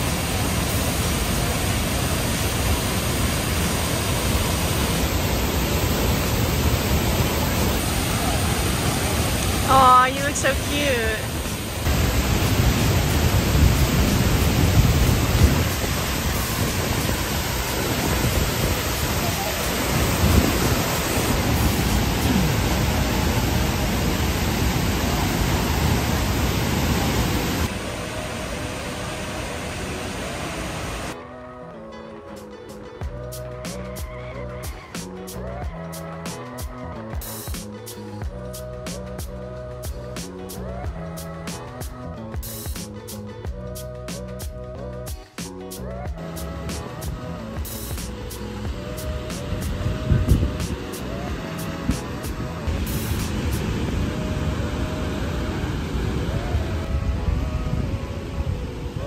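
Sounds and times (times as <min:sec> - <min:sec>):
waterfall rushing: 0:00.0 - 0:31.5, 0:46.2 - 0:59.0
person's voice: 0:09.6 - 0:11.4.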